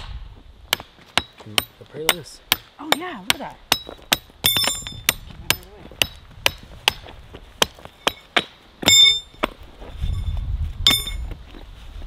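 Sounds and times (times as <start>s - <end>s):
hammer knocking steel stakes: 0.7s - 9.6s.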